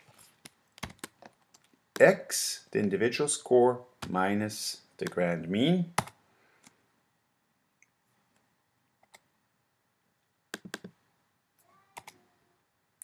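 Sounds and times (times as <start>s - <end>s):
computer keys clicking: 6.0s - 6.2s, 10.5s - 11.0s.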